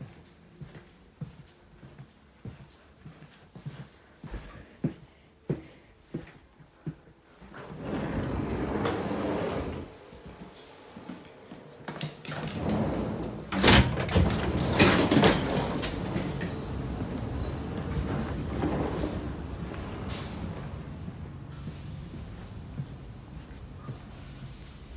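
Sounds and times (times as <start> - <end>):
sliding doors opening and closing: 7.5 - 10.2, 11.8 - 24.9
knocks and rattles: 13.5 - 16.7.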